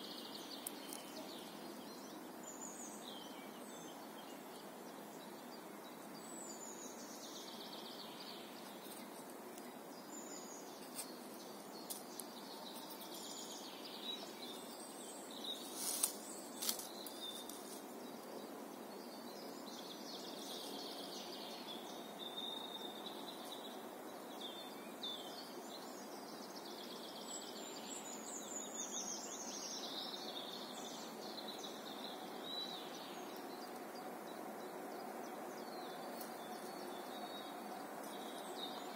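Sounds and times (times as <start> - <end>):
birds singing: 0.0 - 38.9
steady outdoor hiss: 0.0 - 38.9.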